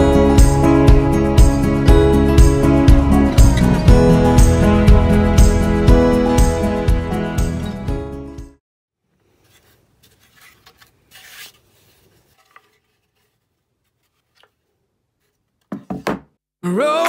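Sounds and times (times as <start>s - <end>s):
wood board scraping on workbench: 9.3s - 14.6s.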